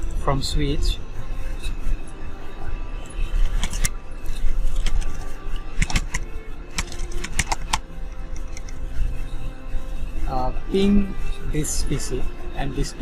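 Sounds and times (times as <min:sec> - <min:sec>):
computer keys clicking: 0:03.4 - 0:03.9, 0:04.7 - 0:05.2, 0:05.8 - 0:06.2, 0:06.8 - 0:07.8.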